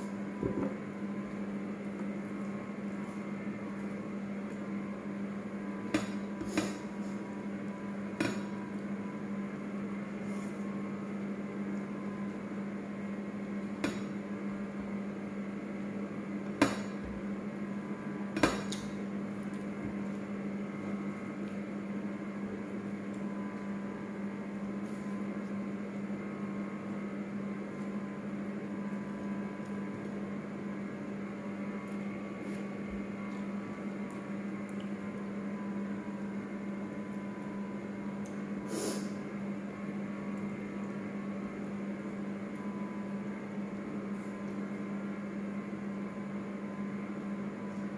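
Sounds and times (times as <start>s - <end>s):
steady low hum: 0.0s - 47.9s.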